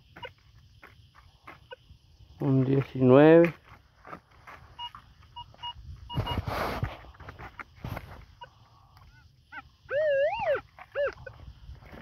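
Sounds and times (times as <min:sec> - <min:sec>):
metal detector beeps: 0:00.1 - 0:00.4, 0:04.8 - 0:06.4
rustle: 0:02.1 - 0:09.2.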